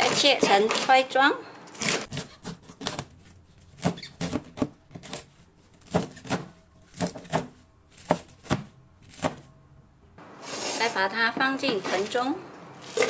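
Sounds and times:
cleaver chopping cabbage on board: 2.1s - 9.5s.

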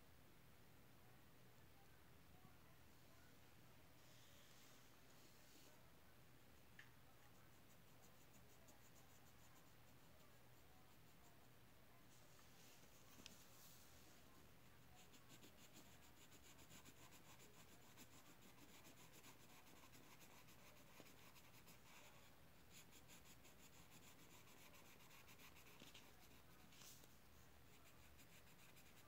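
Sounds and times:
drawing tool scratching on paper: 15.0s - 22.1s, 22.7s - 26.9s, 27.7s - 29.0s.

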